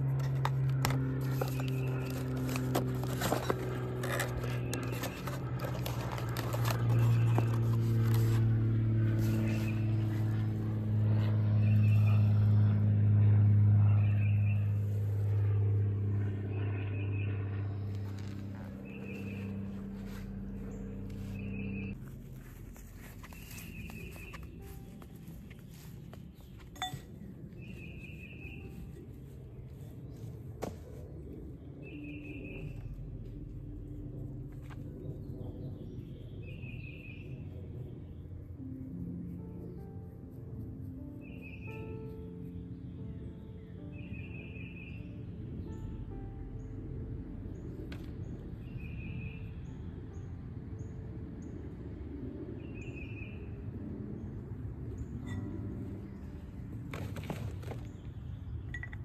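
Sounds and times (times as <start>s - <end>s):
steady low rumble: 0.0s - 59.0s
bird chirping: 16.6s - 22.0s, 23.2s - 29.0s, 31.8s - 32.9s, 35.3s - 37.4s, 41.2s - 45.9s, 48.6s - 51.0s
buzzy bird trills: 16.6s - 22.0s, 31.8s - 33.0s
ringing clink: 26.8s - 27.1s.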